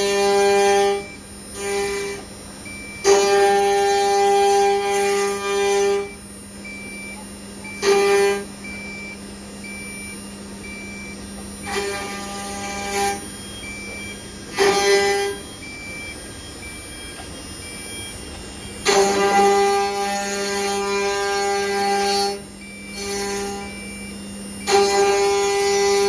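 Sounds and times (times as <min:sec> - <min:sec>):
high-pitched whine of bits cutting wood: 0:00.0 - 0:07.0, 0:07.6 - 0:26.0
spindles humming: 0:07.6 - 0:26.0.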